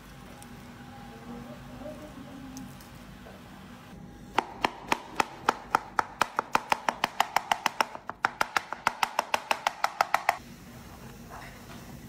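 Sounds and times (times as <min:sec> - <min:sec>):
knife chopping on plastic board: 0:04.3 - 0:10.4.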